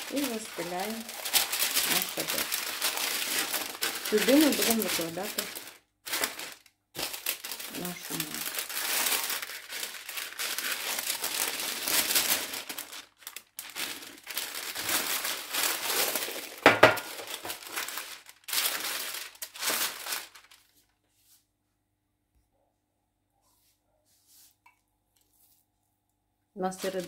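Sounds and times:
parchment paper rustling: 0.0s - 21.4s, 26.7s - 27.0s.

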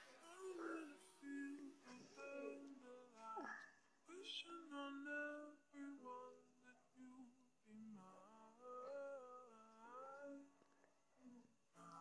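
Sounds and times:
woman humming: 0.2s - 3.7s.

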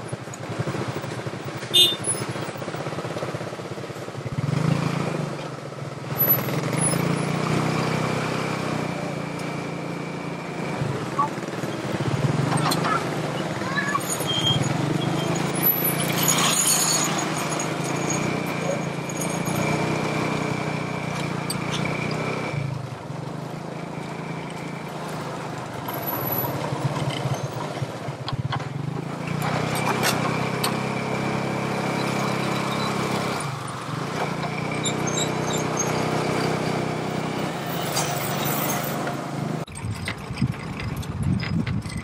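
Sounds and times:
vehicle engine running: 0.0s - 42.0s.

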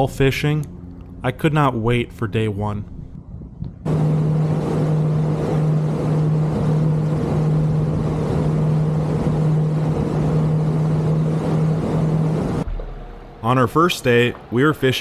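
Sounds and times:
motorboat engine humming: 3.0s - 13.4s
rushing wind and water: 3.9s - 12.7s.

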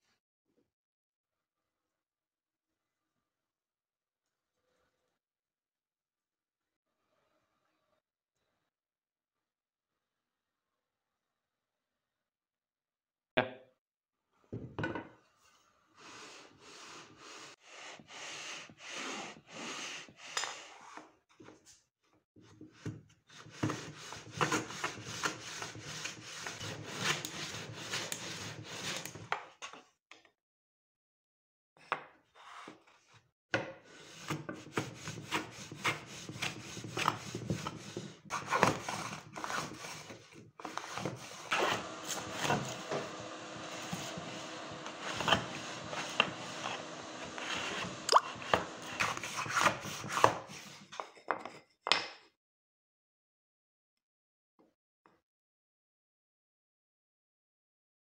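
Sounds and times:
hand plane scraping wood: 16.0s - 21.0s, 23.3s - 29.2s, 33.9s - 50.9s.

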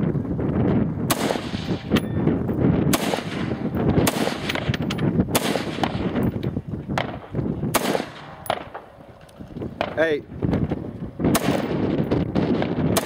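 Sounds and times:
rifle shots: 1.1s - 2.1s, 2.9s - 6.2s, 7.0s - 9.2s, 11.2s - 13.0s.

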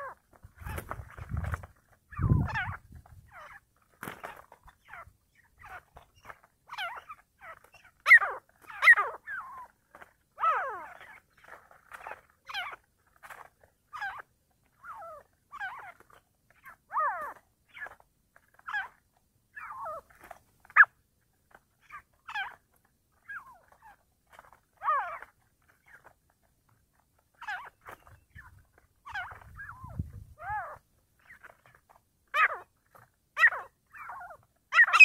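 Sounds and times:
partridges calling harshly: 33.4s - 35.0s.

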